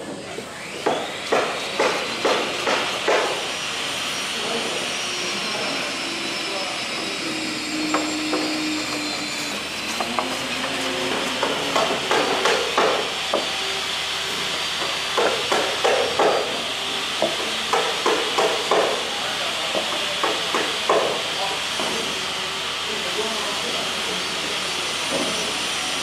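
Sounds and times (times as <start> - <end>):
hand plane shaving wood: 7.9 - 13.3.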